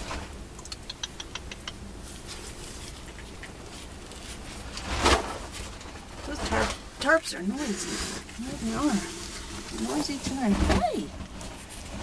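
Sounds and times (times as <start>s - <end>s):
light ticks: 0.6s - 1.8s
tarps rustling: 1.8s - 12.0s.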